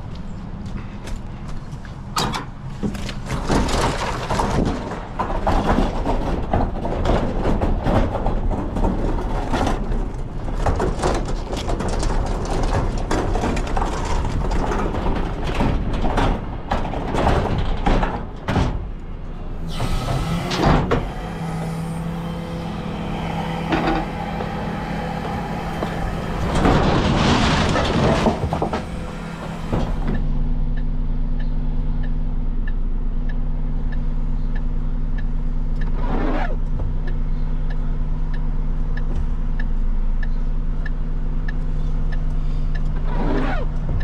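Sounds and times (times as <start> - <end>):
wheeled bin rattling over ground: 2.8 - 18.9, 22.8 - 30.1
truck engine humming: 18.8 - 44.0.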